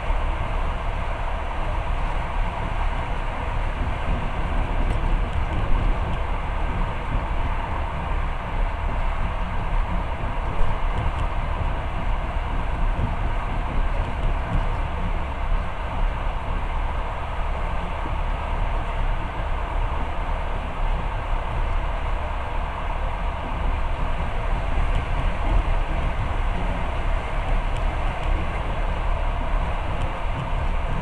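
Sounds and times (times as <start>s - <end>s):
train wheels and carriage noise: 0.0s - 31.0s.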